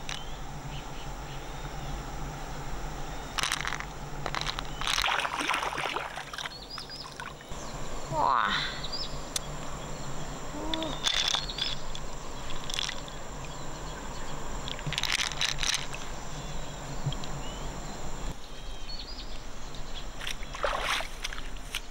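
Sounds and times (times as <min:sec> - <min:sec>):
river water sloshing and trickling: 0:03.4 - 0:07.7, 0:11.0 - 0:16.2, 0:20.2 - 0:21.9
water splashes: 0:04.8 - 0:07.5, 0:20.2 - 0:21.7.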